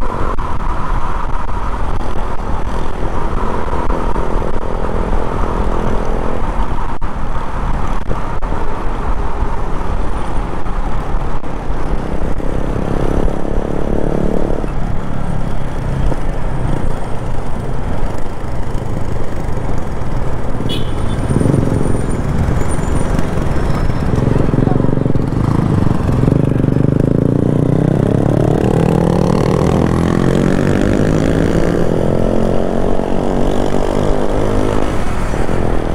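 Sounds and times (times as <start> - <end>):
wind rush on microphone: 0.0 - 35.9
motorcycle engine running: 13.0 - 31.8.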